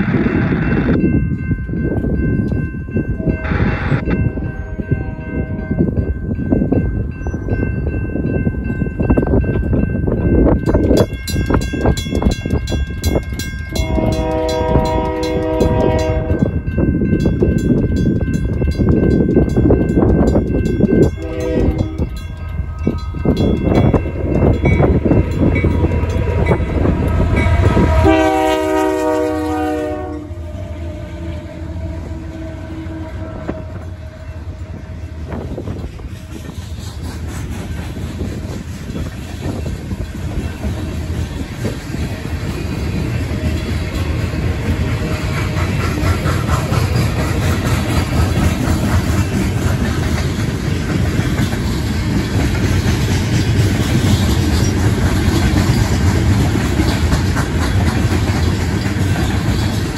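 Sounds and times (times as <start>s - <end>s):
crossing bells ringing: 0.0s - 36.1s, 38.0s - 45.8s
low train rumble: 0.0s - 59.9s
train air horn blasts: 3.2s - 5.8s, 13.7s - 16.6s, 21.2s - 22.2s, 26.2s - 35.4s.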